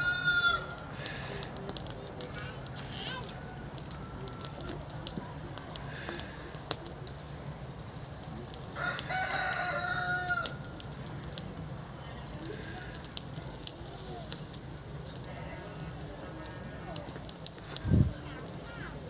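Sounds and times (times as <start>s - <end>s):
rooster crowing: 0.0s - 0.8s, 8.8s - 10.7s
burning straw crackling: 0.0s - 19.0s.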